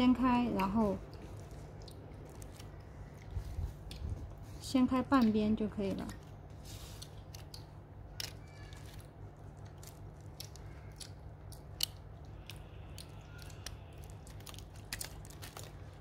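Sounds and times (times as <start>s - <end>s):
bubble wrap crinkling: 0.0s - 5.2s, 5.8s - 16.0s
steady low hum: 0.0s - 16.0s.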